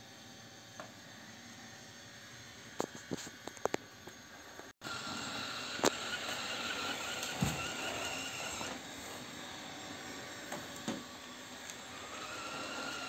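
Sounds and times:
robot vacuum whirring: 0:04.8 - 0:13.0.

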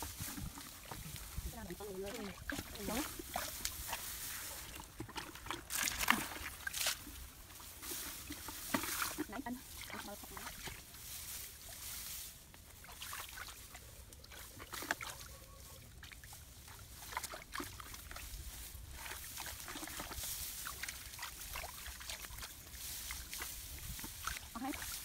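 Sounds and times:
rice stalks rustling: 0:00.0 - 0:13.6, 0:14.8 - 0:25.0.

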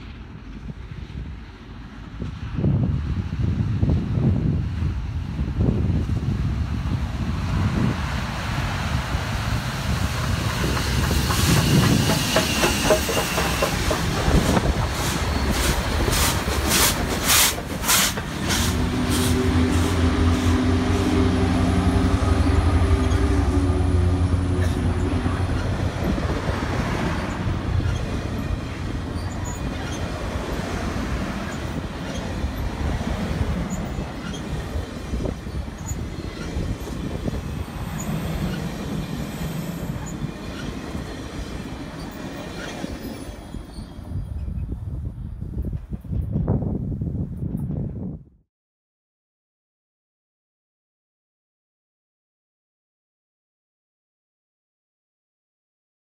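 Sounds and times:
diesel locomotive engine hum: 0:00.0 - 0:48.2
steam locomotive chuffing: 0:09.6 - 0:44.1
train wheels clattering on rails: 0:09.8 - 0:20.8, 0:24.3 - 0:44.6.

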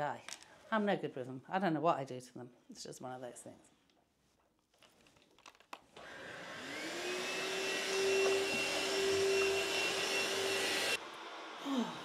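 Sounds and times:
vacuum cleaner motor whine: 0:06.0 - 0:12.0.

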